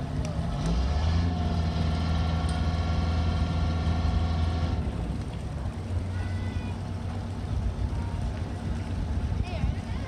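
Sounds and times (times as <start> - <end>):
boat engine idling: 1.5 - 10.0.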